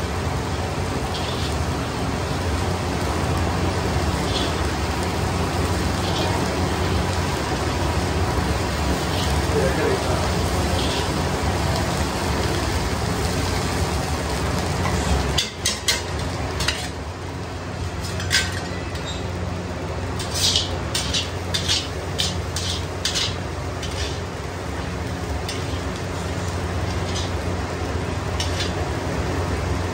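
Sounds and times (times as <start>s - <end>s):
machine mechanical hum: 0.0s - 29.9s
metal spatula scraping wok: 1.0s - 1.6s, 4.1s - 4.7s, 5.8s - 7.1s, 8.9s - 9.5s, 10.5s - 11.2s, 14.8s - 17.0s, 17.8s - 19.4s, 20.1s - 27.6s, 28.2s - 28.9s
stirring arm scraping: 20.2s - 24.3s.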